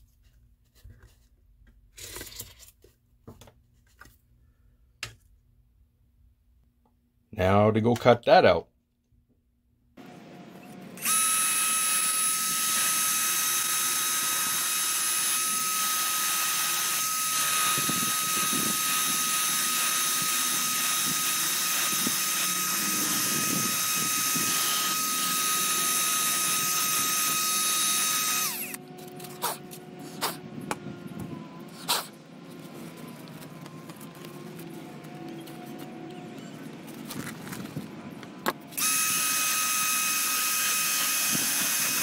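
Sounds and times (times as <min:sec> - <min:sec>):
power tool whining: 0:10.5 - 0:42.0.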